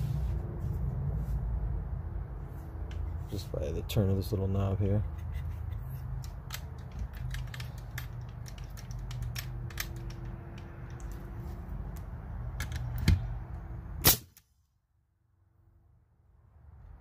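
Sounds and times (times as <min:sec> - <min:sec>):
nail gun clicks and rattles: 0:05.1 - 0:11.2, 0:12.6 - 0:13.2.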